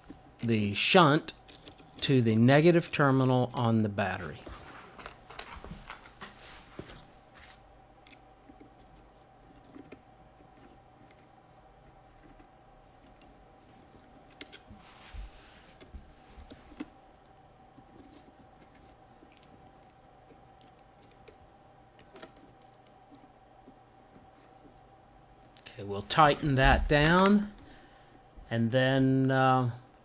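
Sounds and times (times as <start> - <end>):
faint steady hum: 0.0 - 30.0
small metal parts clicking: 1.3 - 2.1.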